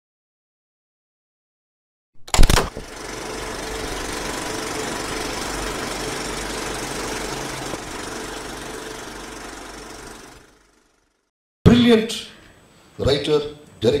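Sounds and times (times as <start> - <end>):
mechanical whirring and rattling: 2.2 - 11.3.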